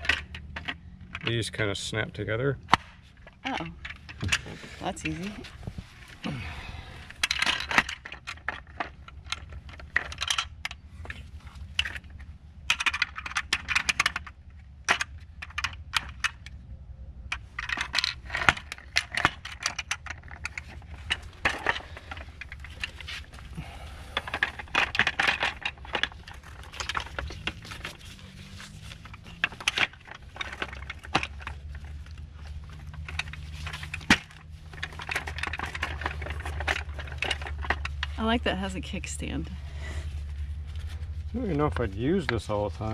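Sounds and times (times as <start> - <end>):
steady low hum: 0.0 - 42.9
plastic parts clicking: 11.7 - 16.6, 17.3 - 23.6, 24.2 - 38.2.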